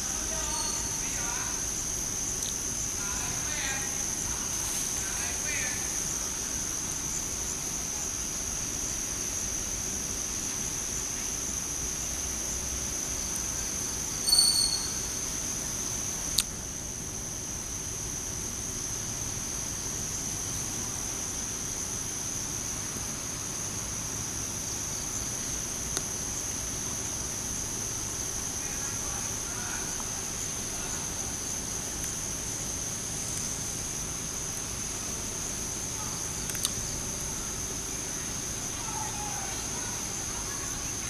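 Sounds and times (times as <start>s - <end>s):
insects droning: 0.0s - 41.0s
high whistled note: 14.2s - 15.0s
sharp click: 36.5s - 36.8s.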